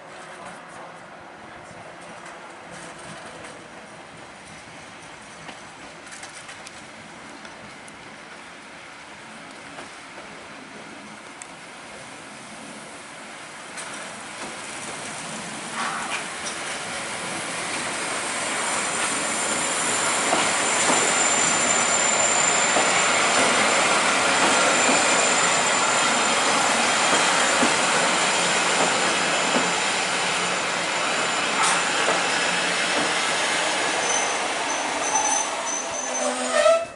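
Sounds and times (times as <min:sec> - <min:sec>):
train wheels rumbling and rattling: 0:01.9 - 0:11.8, 0:13.5 - 0:36.9
high wheel squeal: 0:18.7 - 0:32.4, 0:33.8 - 0:36.9.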